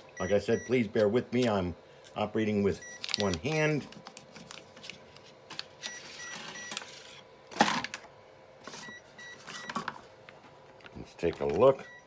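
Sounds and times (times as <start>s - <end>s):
paper rustling and crinkling: 3.0s - 8.0s.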